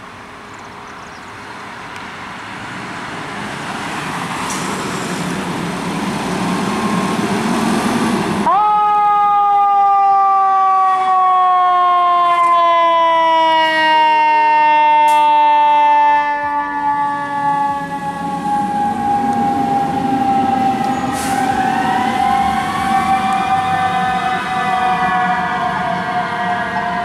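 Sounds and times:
truck engine rumble: 0.0 - 8.6
fire engine siren winding down: 8.4 - 27.0
rising siren wail: 8.4 - 27.0.

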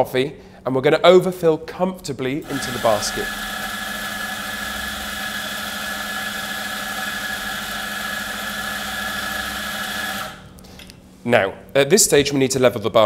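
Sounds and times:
coffee grinder motor whining: 2.4 - 10.5.

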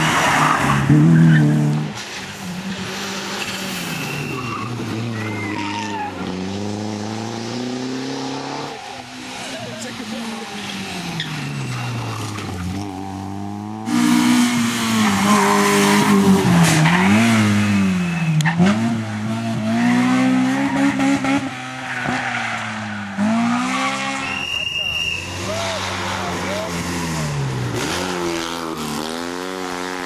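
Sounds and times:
car engine revving past: 4.8 - 9.4.

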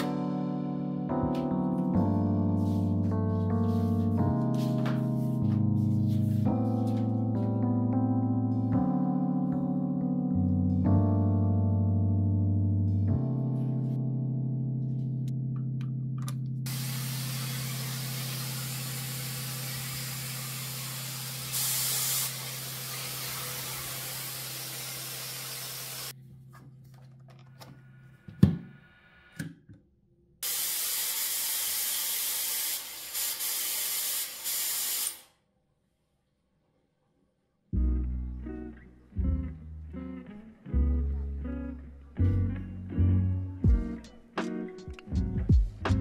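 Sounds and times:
hot air styler blowing: 16.7 - 26.1, 30.4 - 35.3.

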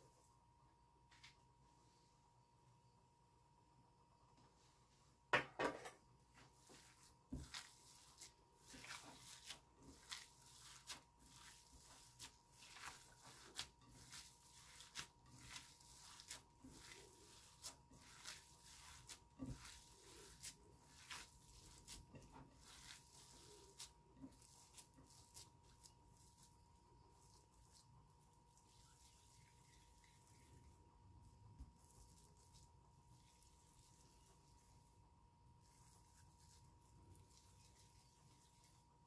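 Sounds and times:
faint steady whine: 0.0 - 24.4
hands squelching raw ground meat: 6.4 - 39.0.

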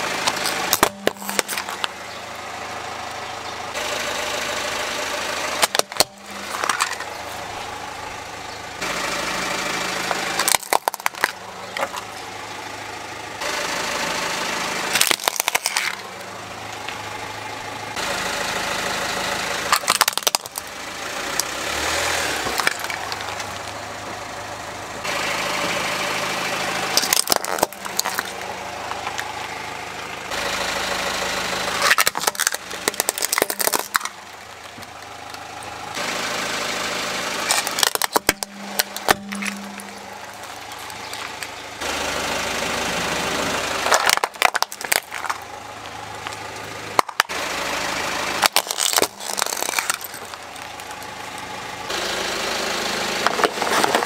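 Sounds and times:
car engine idling: 0.0 - 54.0
plastic toys cracking and snapping: 0.2 - 2.0, 5.6 - 7.1, 10.1 - 12.2, 15.0 - 16.0, 19.7 - 20.7, 22.4 - 23.8, 27.0 - 29.3, 31.8 - 35.4, 37.4 - 41.5, 43.8 - 45.5, 46.2 - 47.4, 48.4 - 51.5, 53.3 - 54.0.

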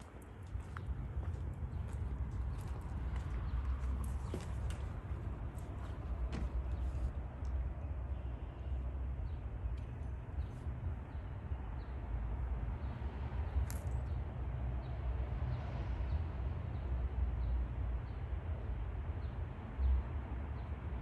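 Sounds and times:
steady low rumble: 0.0 - 14.9.

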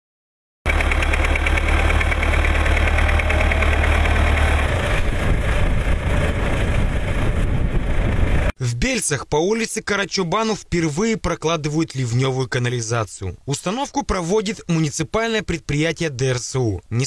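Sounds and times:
diesel engine running: 0.7 - 8.5.

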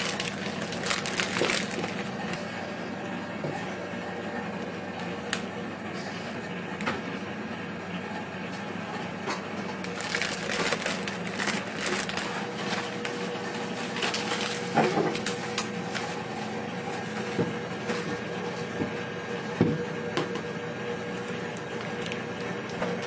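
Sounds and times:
plastic piping bag crinkling: 0.0 - 2.4, 9.8 - 16.2.

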